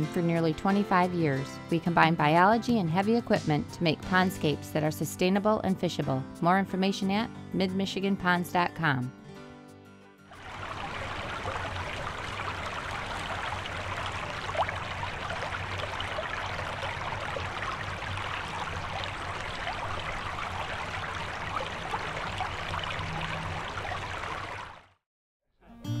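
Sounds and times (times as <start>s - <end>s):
creek water running: 10.3s - 25.0s.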